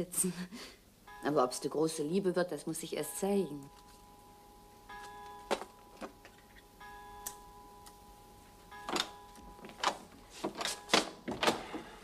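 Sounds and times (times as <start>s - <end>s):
faint steady tone: 0.7s - 12.0s
door latch and door opening: 9.8s - 11.9s.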